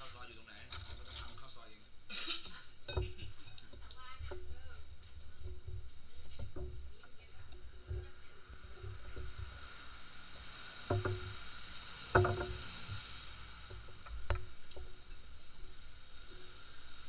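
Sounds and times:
utensils clinking on ceramic bowls: 2.8s - 4.5s.

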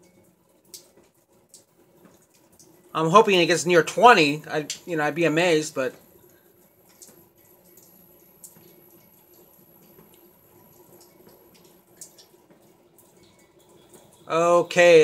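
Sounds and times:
faint steady hum: 0.0s - 15.0s
low hiss: 2.0s - 12.4s, 13.1s - 15.0s
light ticks: 6.9s - 13.5s.

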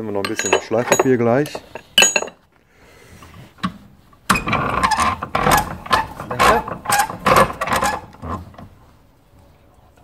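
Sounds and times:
metal strip scraping on vise: 4.3s - 8.5s.

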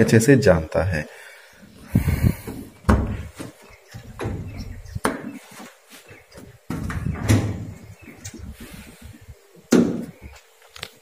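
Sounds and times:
sheet-metal door rattling: 6.7s - 7.8s.

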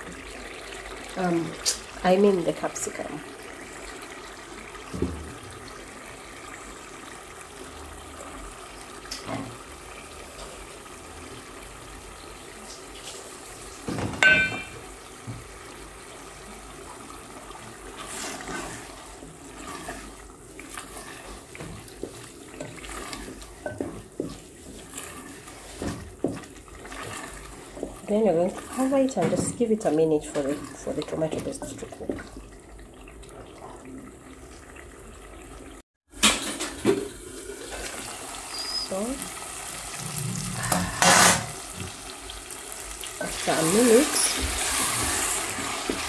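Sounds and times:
spoon knocking metal pot: 14.2s - 14.8s
steady hiss from pot: 14.6s - 33.8s, 36.5s - 46.0s
wooden spoon stirring sauce: 16.3s - 32.6s.

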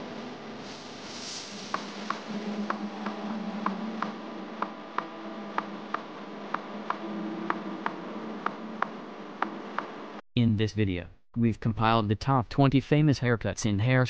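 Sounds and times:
quiet background music: 0.4s - 10.1s.

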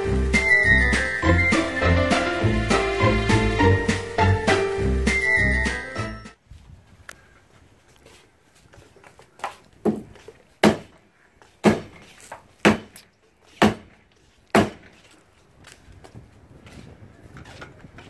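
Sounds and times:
hammer knocking on wood post: 12.6s - 12.9s, 14.6s - 14.9s.

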